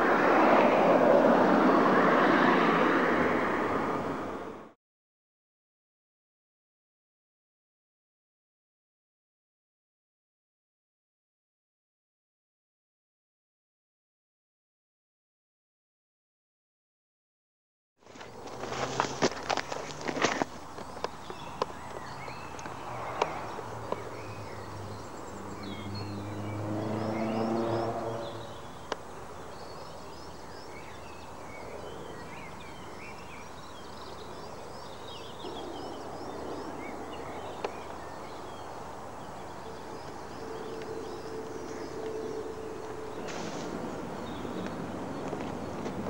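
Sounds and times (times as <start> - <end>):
passing vehicle engine: 0.0 - 4.8, 18.2 - 30.2, 35.0 - 46.0
small birds chirping: 18.1 - 46.0.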